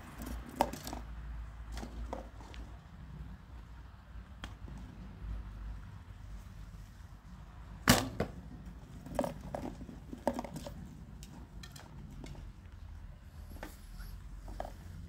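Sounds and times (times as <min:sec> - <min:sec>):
arrow shot from a bow: 0:07.8 - 0:08.4.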